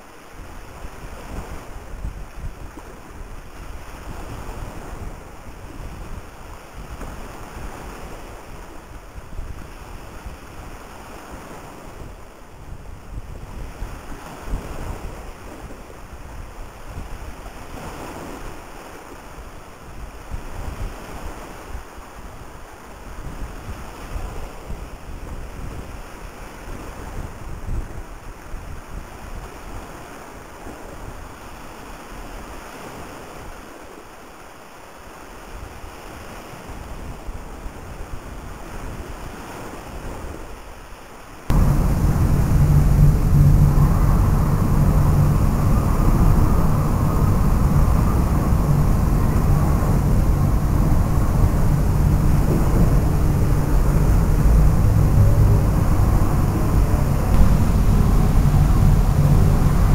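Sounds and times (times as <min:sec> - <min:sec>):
choppy water: 0:00.0 - 0:59.9
wind rumbling on microphone: 0:41.5 - 0:59.9.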